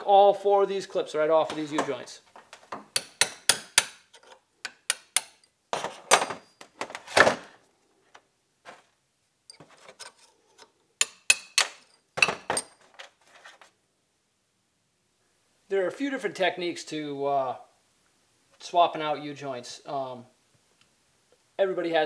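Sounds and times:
hammer tapping metal punch: 0:02.9 - 0:05.5, 0:11.0 - 0:12.7.

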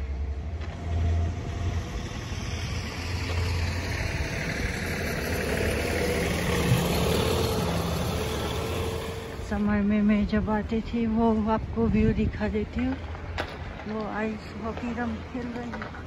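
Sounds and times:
vehicle passing: 0:00.0 - 0:10.5
low traffic rumble: 0:00.0 - 0:16.0.

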